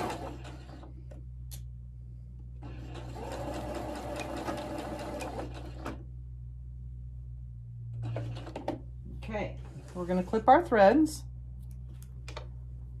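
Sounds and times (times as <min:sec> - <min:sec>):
sewing machine stitching: 0:00.0 - 0:00.9, 0:02.6 - 0:06.0, 0:08.0 - 0:08.8
steady low hum: 0:00.2 - 0:03.8, 0:05.5 - 0:13.0.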